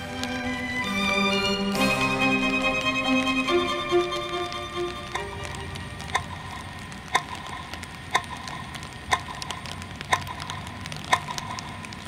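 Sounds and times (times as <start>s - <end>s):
clock ticking: 2.6s - 12.0s.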